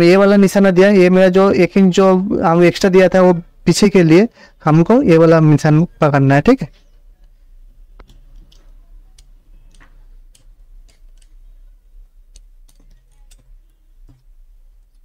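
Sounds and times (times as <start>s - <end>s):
faint clicks and taps of tools: 6.8s - 11.6s, 12.3s - 15.0s.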